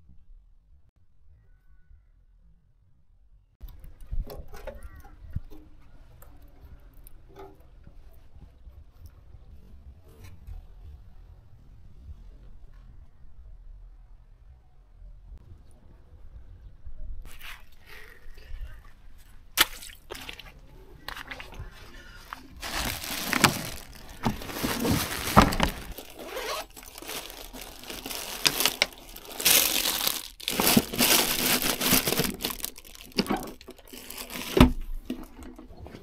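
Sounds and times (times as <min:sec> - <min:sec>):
plastic rustling and crinkling: 0:20.0 - 0:36.0.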